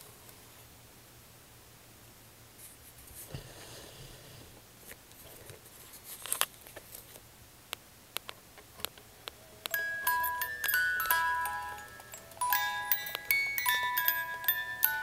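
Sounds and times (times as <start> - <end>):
soft scraping rustle: 2.6 - 7.2.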